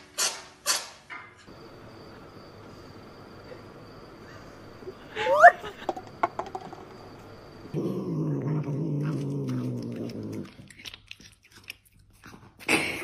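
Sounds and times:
cat growling: 0:07.7 - 0:12.7.

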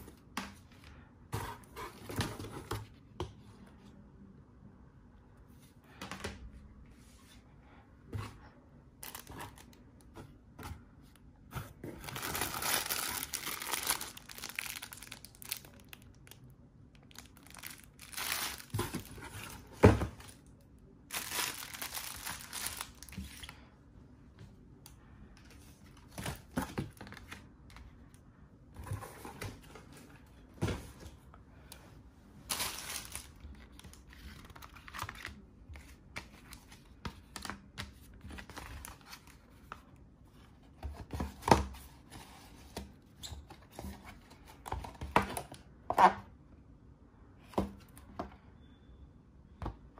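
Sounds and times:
plastic packaging crinkling: 0:09.0 - 0:09.8, 0:12.0 - 0:20.4, 0:21.1 - 0:23.5, 0:32.5 - 0:35.4.

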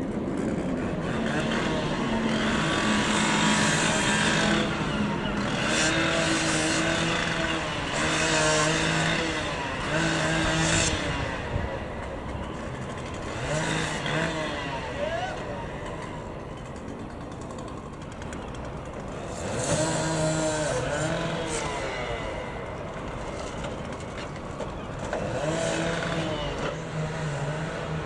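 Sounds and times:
harsh high blade cutting noise: 0:00.4 - 0:16.2
cordless power tool motor: 0:00.4 - 0:28.0.

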